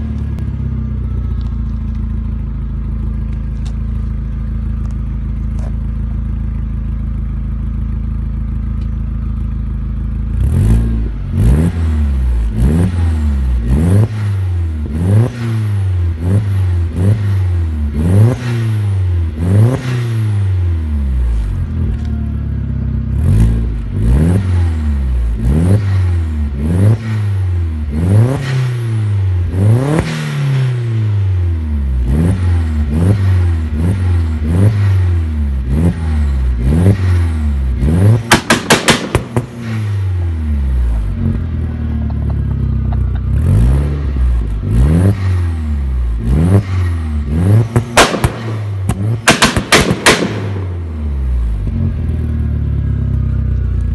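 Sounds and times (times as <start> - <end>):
car engine revving: 0.0 - 53.9
exhaust pops and crackles: 1.2 - 6.7, 38.0 - 40.2, 41.0 - 43.4, 47.5 - 51.0, 52.8 - 53.9.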